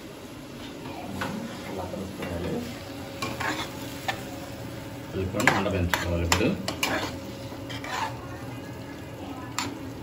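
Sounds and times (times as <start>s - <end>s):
light sizzle of frying: 0.0s - 10.0s
spatula scraping a pan: 3.2s - 4.2s, 5.4s - 8.3s.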